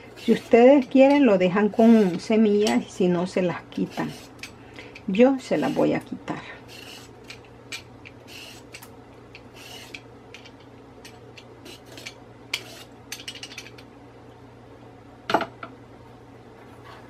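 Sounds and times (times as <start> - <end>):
peeler scraping cucumber: 0.0 - 2.9, 3.7 - 10.1, 11.7 - 13.4.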